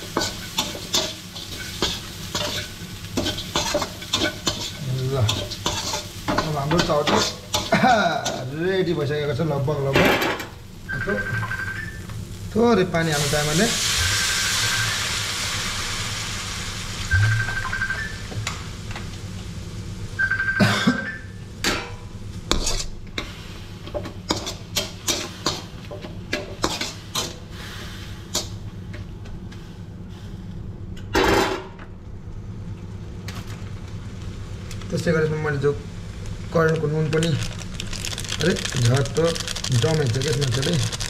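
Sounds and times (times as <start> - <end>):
metal spatula scraping a wok: 0.0 - 8.4, 22.5 - 22.9
sizzling steam hiss: 0.0 - 9.9, 10.5 - 20.2, 22.3 - 26.0, 26.6 - 28.6.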